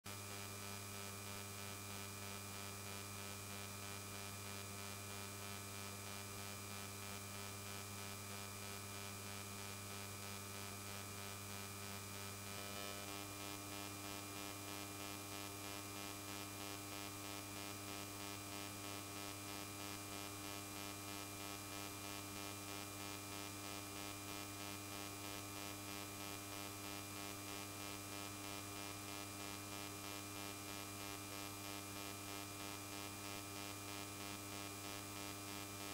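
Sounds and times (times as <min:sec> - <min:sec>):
electrical mains hum: 0:12.0 - 0:35.9.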